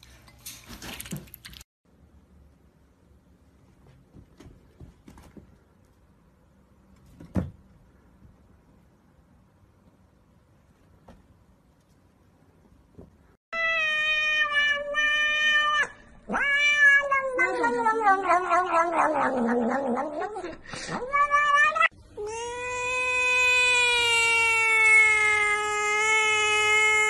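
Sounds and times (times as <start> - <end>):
cats yowling and meowing: 13.6 - 27.0.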